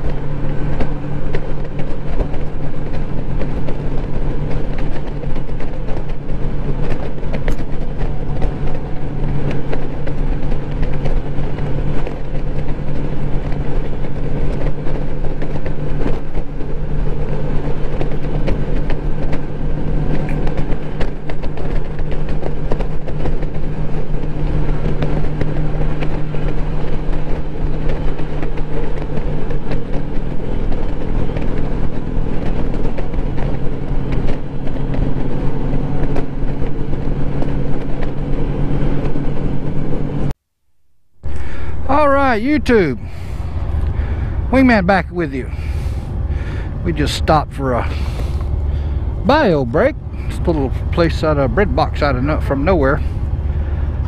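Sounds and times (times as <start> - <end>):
motorcycle engine drone: 0.0 - 54.0
wind rush on microphone: 41.2 - 54.0.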